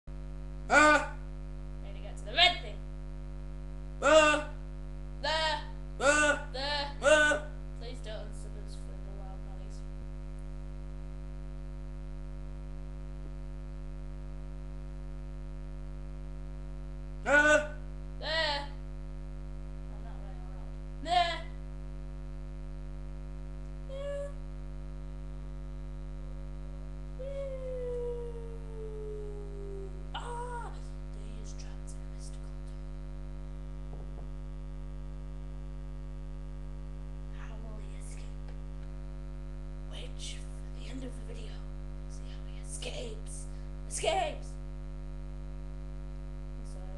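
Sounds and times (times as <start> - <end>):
electrical mains hum: 0.1 - 46.9
short vocal sound: 0.7 - 1.2, 4.0 - 4.6, 5.2 - 7.6, 17.2 - 18.7, 23.9 - 24.4, 27.2 - 30.9.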